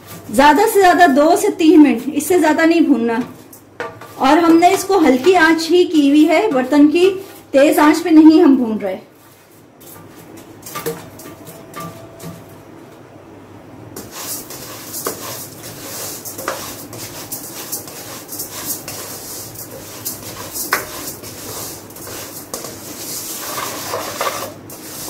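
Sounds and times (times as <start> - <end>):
spatula scraping and clicking: 3.2 - 5.6, 14.0 - 25.0
rice grains rattling in a wok: 14.0 - 25.0.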